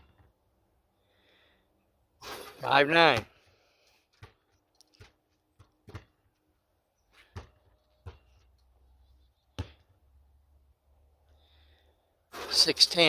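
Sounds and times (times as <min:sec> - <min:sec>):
basketball bouncing on asphalt: 0:03.1 - 0:08.7, 0:09.4 - 0:10.3.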